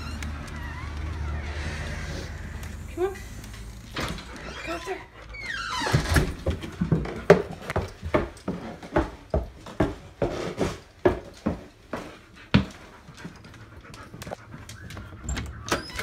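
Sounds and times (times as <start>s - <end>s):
dog panting fast: 11.9s - 15.8s.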